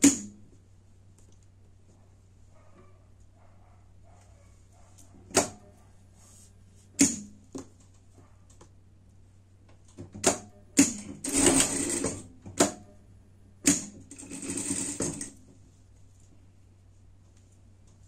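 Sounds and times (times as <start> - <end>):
low steady hum: 0.0 - 18.0
mechanical clicks and knocks: 9.8 - 13.0, 13.6 - 15.4
sewing machine stitching: 10.2 - 12.8, 13.7 - 15.4.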